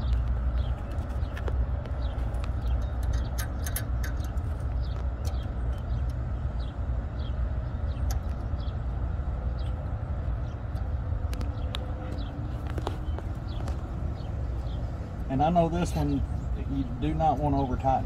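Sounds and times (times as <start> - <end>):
road traffic rumble: 0.0 - 18.0
metal fittings clicking: 2.4 - 4.4.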